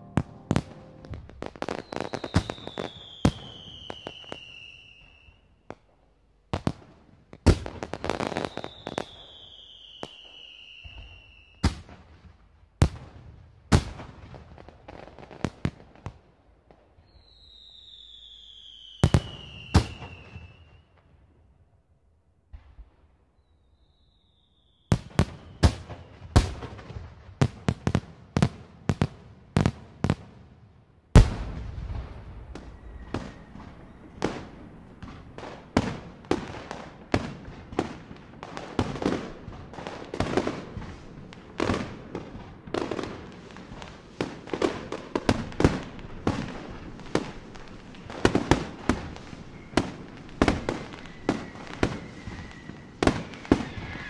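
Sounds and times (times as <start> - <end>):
fireworks bangs: 0.0 - 6.0, 31.1 - 54.0
fireworks crackle: 0.0 - 6.0, 31.2 - 54.0
thin whistling tone: 32.6 - 34.6, 49.4 - 54.0.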